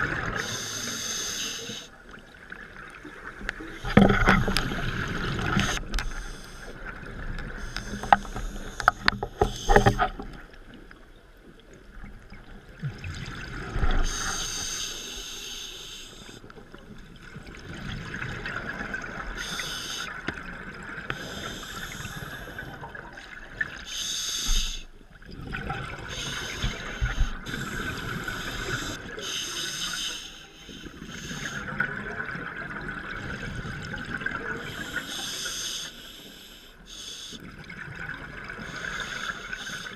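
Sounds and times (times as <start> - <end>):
diver breathing through regulator: 0.4 - 1.9, 7.6 - 10.2, 14.0 - 16.4, 21.1 - 22.8, 26.1 - 31.7, 34.6 - 37.5, 38.6 - 39.9.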